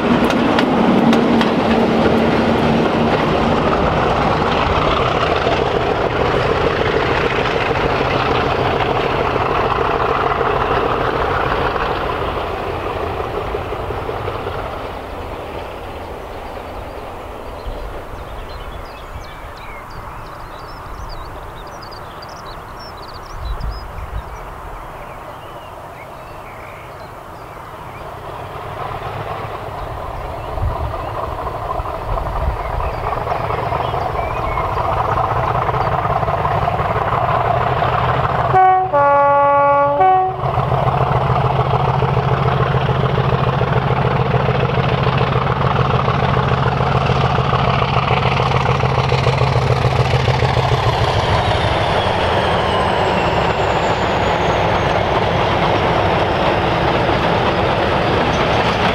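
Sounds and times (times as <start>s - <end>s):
train wheels clattering: 0.0s - 24.4s, 28.0s - 39.1s, 40.0s - 58.9s
diesel locomotive engine: 0.0s - 58.9s
two-tone train horn: 38.5s - 40.6s.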